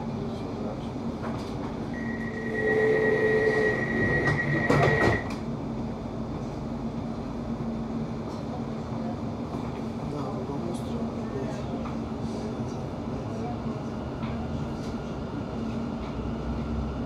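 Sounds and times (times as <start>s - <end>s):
train electrical hum: 0.0s - 17.0s
train door warning tone: 1.9s - 5.4s
sliding doors shutting: 3.5s - 5.4s.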